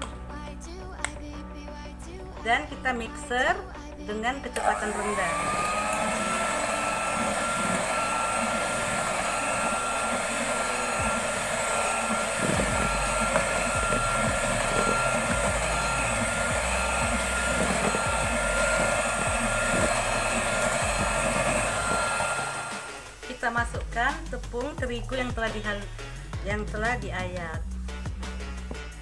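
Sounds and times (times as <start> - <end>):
electric hand mixer whirring: 4.5 - 24.0.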